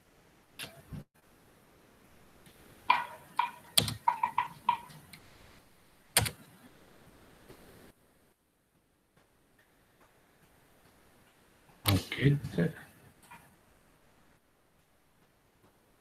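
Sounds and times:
keyboard keystrokes: 0:02.9 - 0:04.9, 0:06.2 - 0:06.4.

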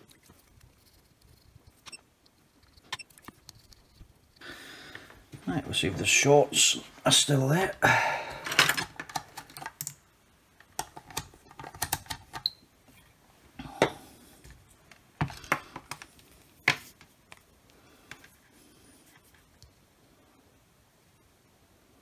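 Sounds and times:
handling clicks and knocks: 0:10.6 - 0:12.5.

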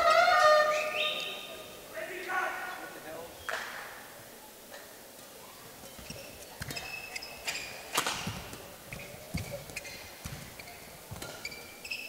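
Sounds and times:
court shoes squeaking: 0:04.8 - 0:12.0
footsteps thudding: 0:06.0 - 0:11.6
racket hitting shuttlecock: 0:06.0 - 0:11.9.

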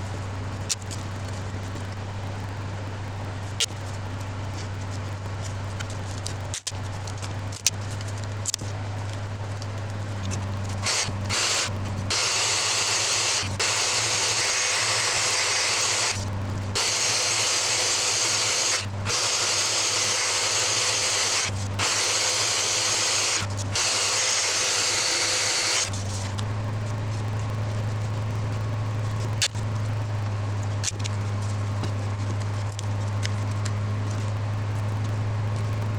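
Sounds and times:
low steady hum: 0:00.0 - 0:35.9
orbital sander on wood: 0:10.8 - 0:26.0.

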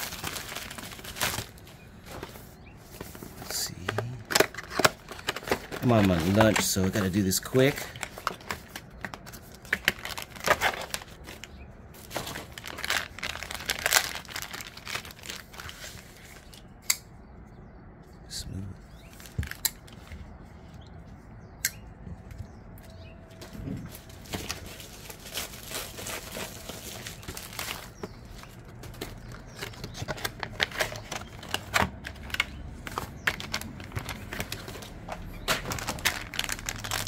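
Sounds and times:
packaging rustling: 0:00.0 - 0:16.6, 0:23.3 - 0:37.0.

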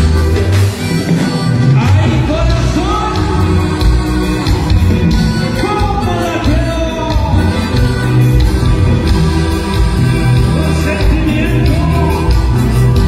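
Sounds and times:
live band music: 0:00.0 - 0:13.0
person singing: 0:09.0 - 0:13.0.

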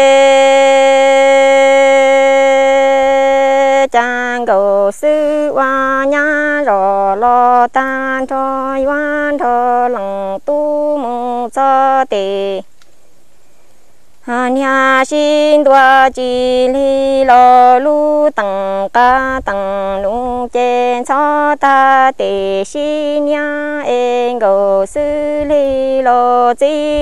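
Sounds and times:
person chanting verse: 0:00.0 - 0:12.6, 0:14.3 - 0:27.0
short breaths: 0:13.0 - 0:14.1.

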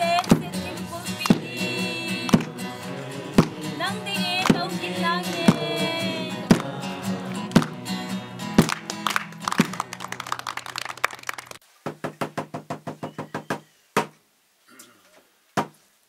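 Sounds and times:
music with drumbeats: 0:03.4 - 0:03.6, 0:05.5 - 0:05.7, 0:07.5 - 0:07.8.

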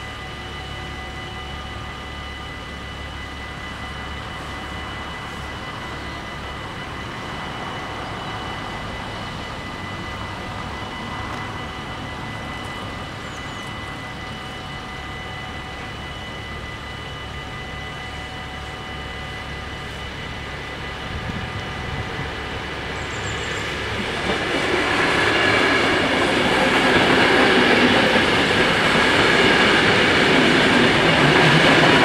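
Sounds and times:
level crossing warning bells: 0:00.0 - 0:32.0
broad rushing noise: 0:21.0 - 0:32.0.

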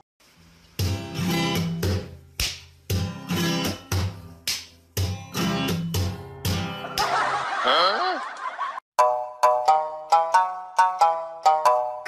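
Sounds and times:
strummed guitar chords: 0:00.8 - 0:02.2, 0:02.9 - 0:07.4.

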